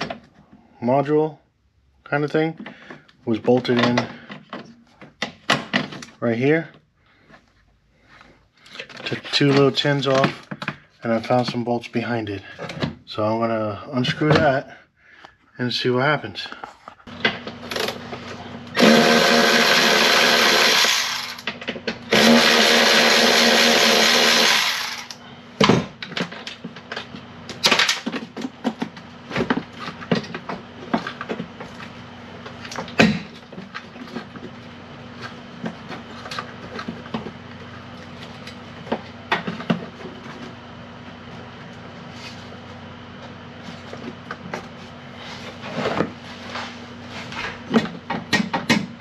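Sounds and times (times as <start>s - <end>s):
cordless power tool running: 17.6s - 21.5s, 22.1s - 25.2s.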